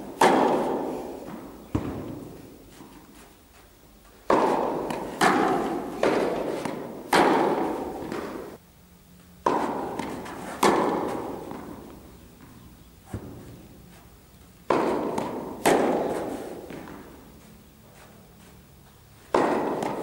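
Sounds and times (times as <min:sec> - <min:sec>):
tennis ball bounces: 0:00.0 - 0:03.3, 0:04.0 - 0:08.6, 0:09.4 - 0:20.0
tennis racket strikes: 0:00.0 - 0:03.3, 0:04.2 - 0:08.6, 0:09.4 - 0:13.9, 0:14.6 - 0:17.4, 0:19.2 - 0:20.0.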